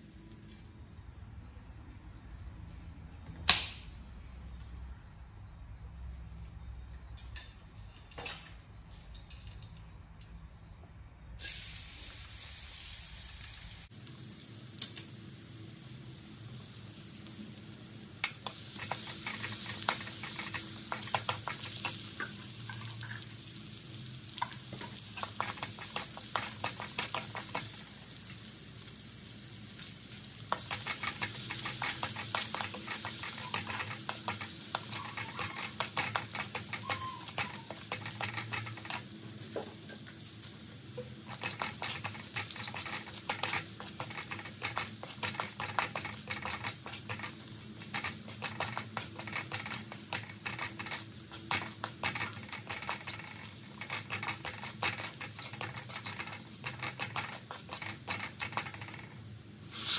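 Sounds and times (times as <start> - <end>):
garlic sizzling in hot oil: 11.4 - 59.9
wooden spatula scraping wok: 18.5 - 23.2, 24.7 - 27.8, 30.5 - 40.0, 41.0 - 59.2.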